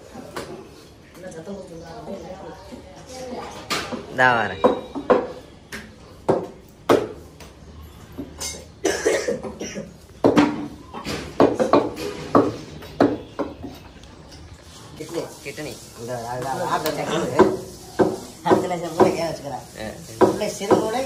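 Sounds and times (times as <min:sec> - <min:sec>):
knife chopping meat on wood: 0:06.2 - 0:07.2, 0:17.4 - 0:19.2, 0:20.2 - 0:21.0.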